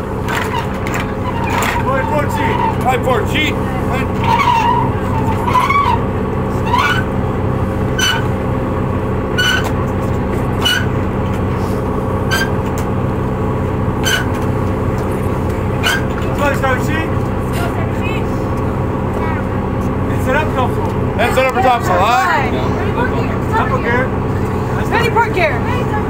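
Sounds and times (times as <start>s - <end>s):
ship engine droning: 0.0s - 26.0s.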